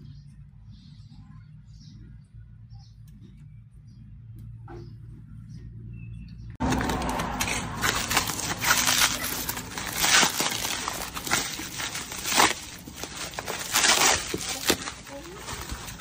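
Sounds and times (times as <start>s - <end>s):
bubble wrap and tape crinkling: 6.6s - 16.0s.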